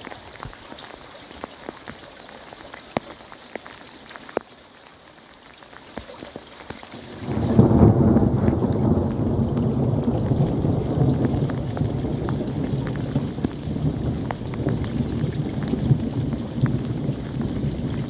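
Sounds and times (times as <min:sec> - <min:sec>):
heavy rain falling: 0:00.0 - 0:18.0
raindrops ticking: 0:00.0 - 0:18.0
low rumble of thunder: 0:07.1 - 0:18.0.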